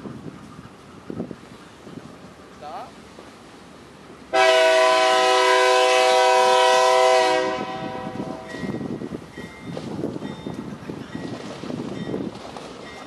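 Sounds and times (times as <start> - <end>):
locomotive air horn blast: 4.3 - 8.6.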